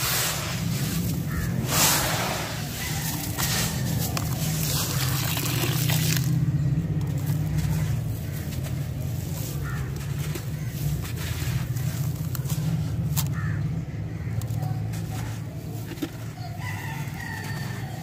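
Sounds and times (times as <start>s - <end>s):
hands squeezing wet sand: 0.0s - 13.4s
water pouring into sand: 4.6s - 6.3s.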